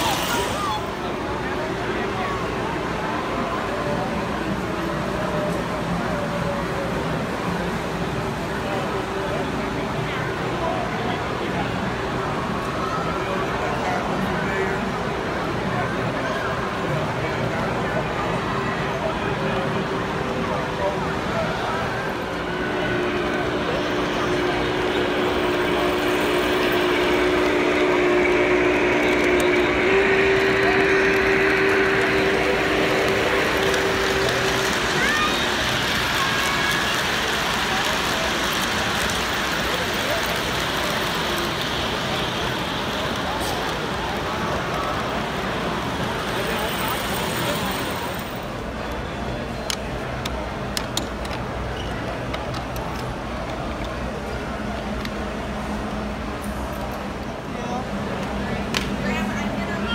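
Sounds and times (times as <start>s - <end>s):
model train motor hum: 0.0s - 1.1s, 20.7s - 48.7s
crowd hubbub: 0.0s - 59.9s.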